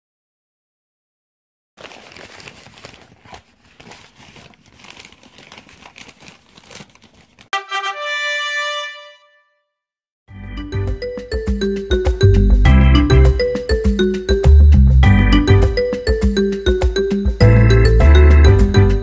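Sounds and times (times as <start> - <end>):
paper bag crinkling: 1.8 - 7.6.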